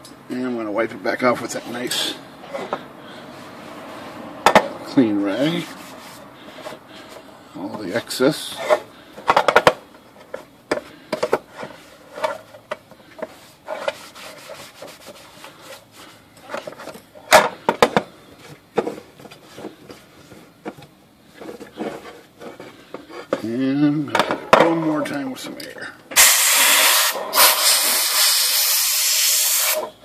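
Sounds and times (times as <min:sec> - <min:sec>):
cloth rubbing on metal lid: 0:13.6 - 0:16.2.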